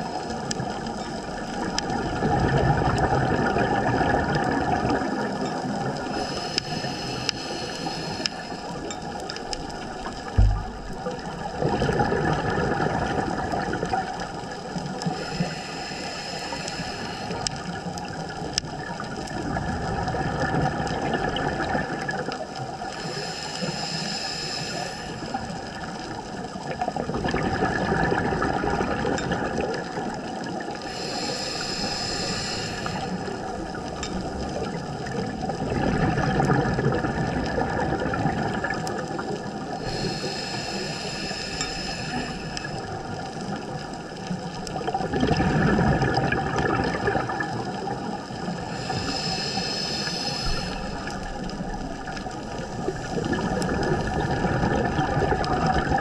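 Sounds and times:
diver breathing through regulator: 0:06.0 - 0:09.1, 0:15.0 - 0:17.9, 0:22.9 - 0:25.8, 0:30.8 - 0:33.6, 0:39.5 - 0:43.4, 0:48.2 - 0:54.4
low thump: 0:10.4 - 0:11.0.

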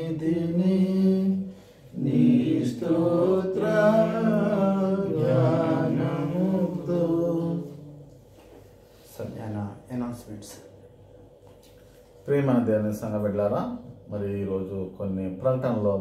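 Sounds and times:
man singing a hymn unaccompanied: 0:00.0 - 0:08.0.

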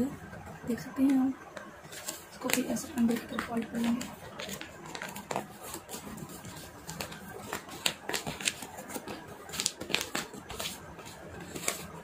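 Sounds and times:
paper folding crackles: 0:01.8 - 0:12.0.

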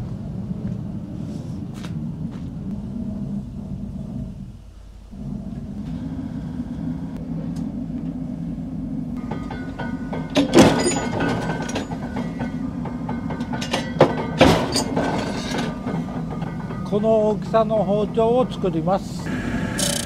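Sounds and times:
metal shear humming: 0:00.2 - 0:20.0
loud metallic clanks: 0:09.2 - 0:20.0
metal ringing: 0:09.2 - 0:20.0.

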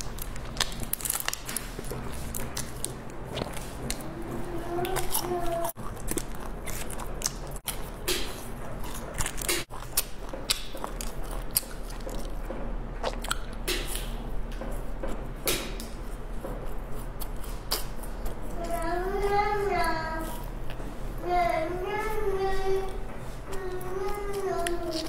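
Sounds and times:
plastic wrapper crinkling: 0:00.0 - 0:04.0
chewing flaky pastry: 0:00.0 - 0:25.0.

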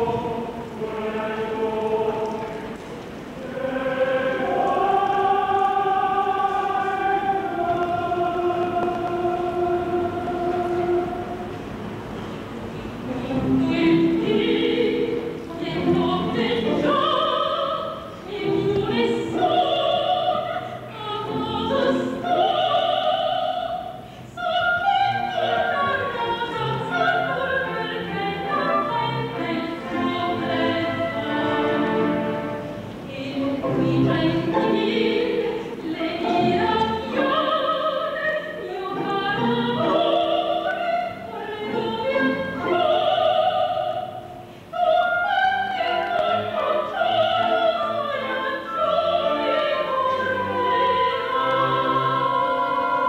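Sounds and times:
orchestra playing: 0:00.0 - 0:22.8, 0:25.0 - 0:44.6
woman singing operatically: 0:13.1 - 0:32.4, 0:33.1 - 0:53.0.

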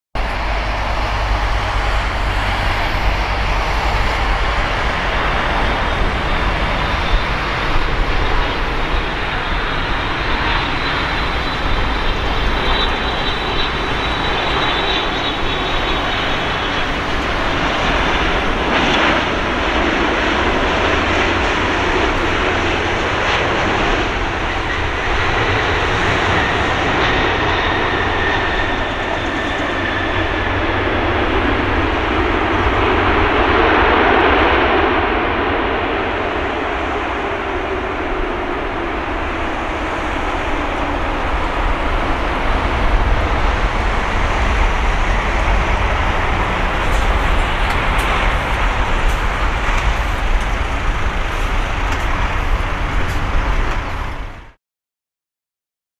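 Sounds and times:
jet engine roar: 0:00.2 - 0:54.6
high fan whine: 0:36.0 - 0:54.6.

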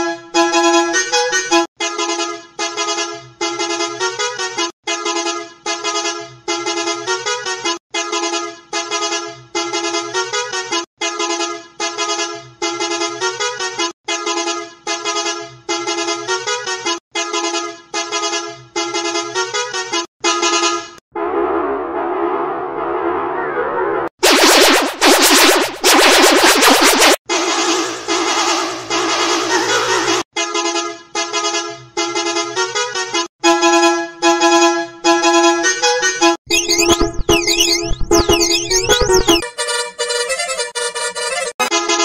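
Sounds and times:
multi-tone musical bus horn: 0:00.0 - 0:21.0, 0:28.8 - 0:36.4, 0:39.4 - 0:42.0.

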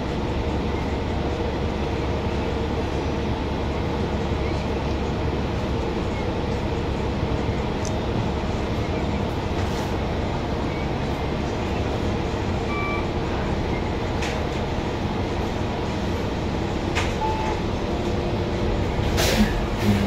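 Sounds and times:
bus engine rumble inside cabin: 0:00.0 - 0:20.0.

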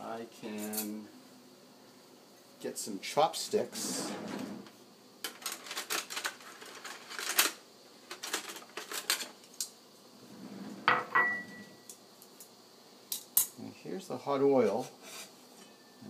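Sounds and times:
utensils clicking and clattering: 0:05.2 - 0:09.7.

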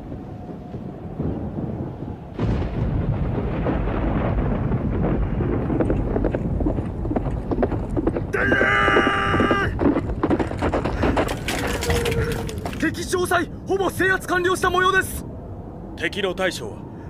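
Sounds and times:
horses hoofbeats galloping: 0:05.5 - 0:13.0.

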